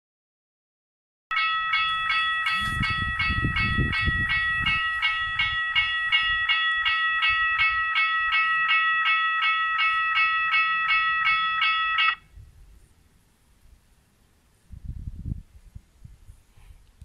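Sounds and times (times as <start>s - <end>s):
level crossing electronic bell: 1.3s - 12.2s.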